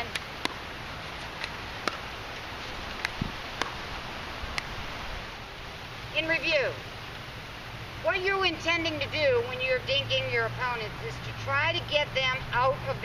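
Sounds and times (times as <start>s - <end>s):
ball bouncing on hard court: 0.0s - 0.6s, 1.4s - 2.1s
background hiss: 0.0s - 13.0s.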